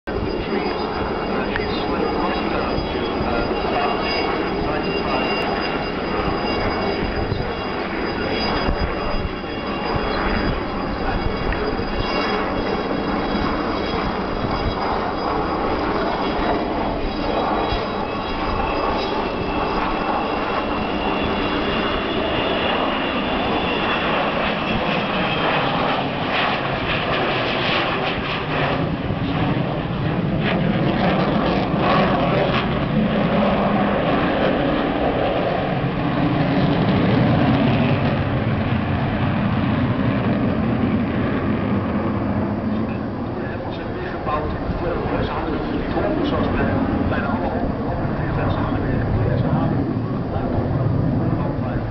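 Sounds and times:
jet engine rumble: 0:00.0 - 0:51.9
jet engines whining: 0:00.1 - 0:51.9.

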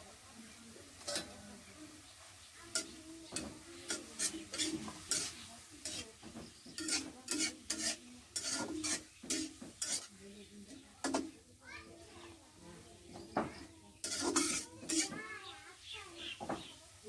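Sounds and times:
onions sizzling in oil: 0:00.0 - 0:17.0
metal spatula scraping a wok: 0:01.0 - 0:01.6, 0:02.7 - 0:11.4, 0:13.5 - 0:15.4.

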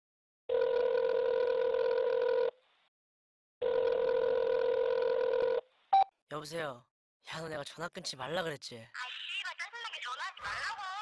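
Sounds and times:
telephone ringing: 0:00.5 - 0:02.5, 0:03.6 - 0:05.6.

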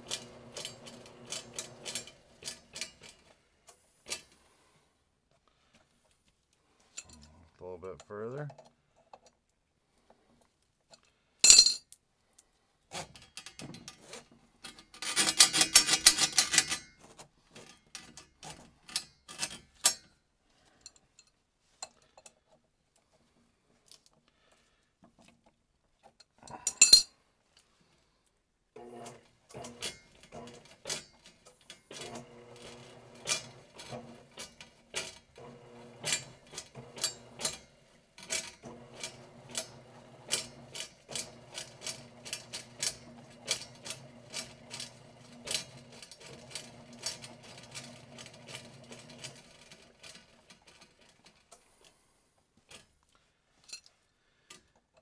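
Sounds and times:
steel cable clinking and rattling: 0:00.0 - 0:03.4, 0:12.9 - 0:22.5, 0:25.0 - 0:27.7, 0:29.1 - 0:51.9
electric motor humming: 0:32.0 - 0:34.4, 0:35.4 - 0:37.4.

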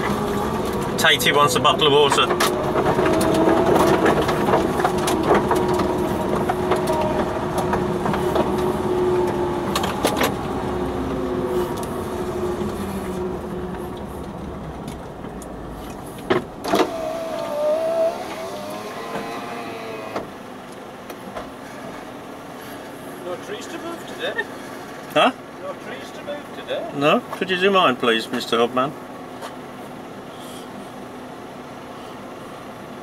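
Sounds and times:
steady whine: 0:00.0 - 0:24.2
vehicle engine idling: 0:00.0 - 0:33.0.

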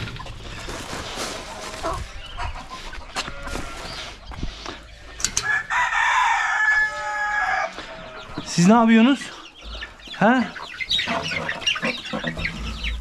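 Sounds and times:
chickens clucking: 0:00.0 - 0:13.0
rooster crowing: 0:05.4 - 0:08.1.

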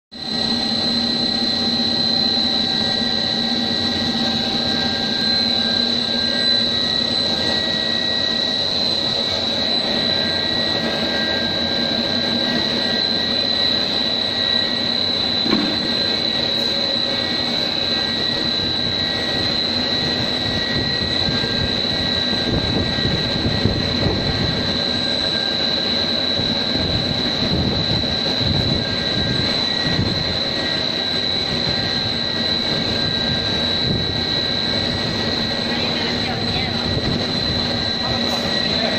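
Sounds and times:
machine whine and hum: 0:00.1 - 0:38.9.

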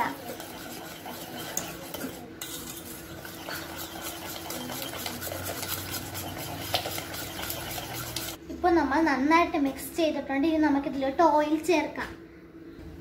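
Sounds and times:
whisk clicking and scraping in pot: 0:00.0 - 0:08.4.

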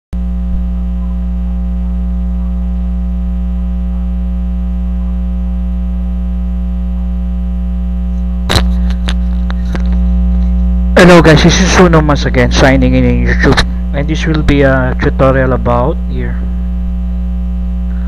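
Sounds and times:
electrical mains hum: 0:00.2 - 0:18.0
sharp click: 0:08.5 - 0:10.0.

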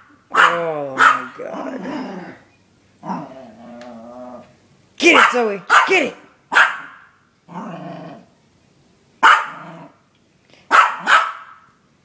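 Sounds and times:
small dog yapping: 0:00.3 - 0:01.3, 0:06.5 - 0:07.1, 0:09.2 - 0:09.9, 0:10.7 - 0:11.7
dog growling low: 0:01.4 - 0:04.6, 0:07.5 - 0:08.3, 0:09.5 - 0:10.0.

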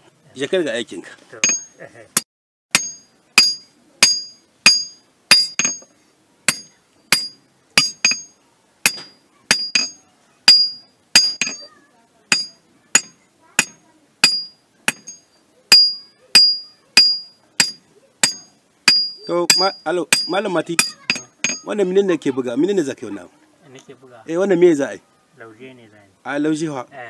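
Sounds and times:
hammer striking iron on anvil: 0:01.4 - 0:01.8, 0:02.7 - 0:05.9, 0:06.5 - 0:11.7, 0:12.3 - 0:21.7.

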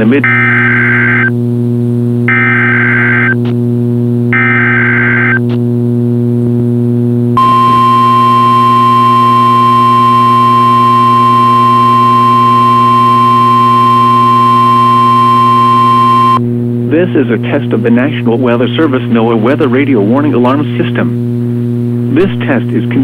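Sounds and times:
steady low hum: 0:00.0 - 0:23.0
steady alarm tone: 0:02.3 - 0:03.4, 0:04.3 - 0:05.4, 0:07.4 - 0:16.4
warbling data tones: 0:02.3 - 0:03.4, 0:04.3 - 0:05.5, 0:07.4 - 0:16.4.

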